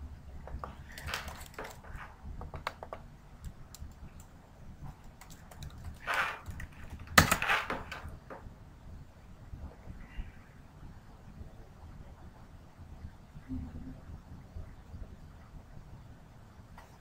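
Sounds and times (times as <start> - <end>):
keyboard typing: 0.5 - 4.3, 4.9 - 7.5.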